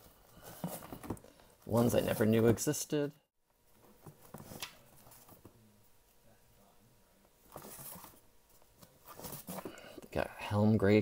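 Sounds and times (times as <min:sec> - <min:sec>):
comic book covers rustling: 0:00.0 - 0:02.8, 0:03.7 - 0:05.7, 0:07.4 - 0:10.0.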